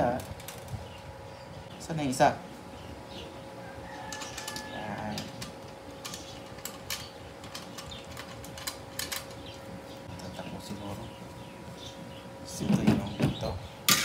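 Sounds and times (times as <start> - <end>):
faint hum: 0.0 - 14.0
metal parts clicking and knocking: 4.0 - 9.5.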